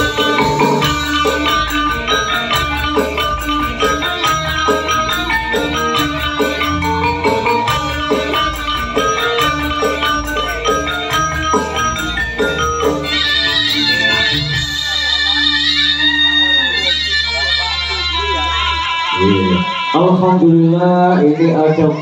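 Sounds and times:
instrumental band music: 0.0s - 20.2s.

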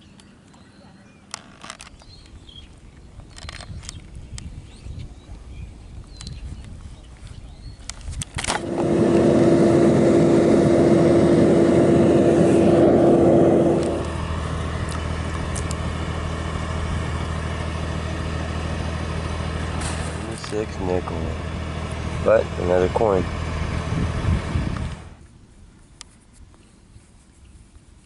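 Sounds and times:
motor hum: 8.2s - 25.3s
loud rushing noise: 8.5s - 15.3s.

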